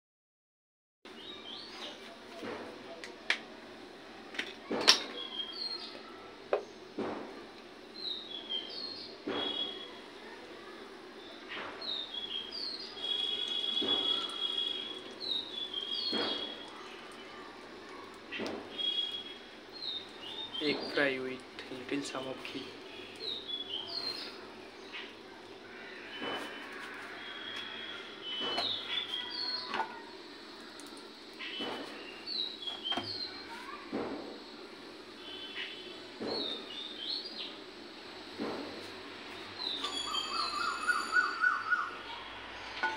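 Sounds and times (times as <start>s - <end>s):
small birds chirping: 1.1s - 2.2s, 4.7s - 7.0s, 7.9s - 38.3s, 39.3s - 42.7s
gas burner hissing: 1.2s - 40.2s
bird chirping: 11.5s - 16.8s, 18.3s - 21.1s, 39.4s - 42.1s.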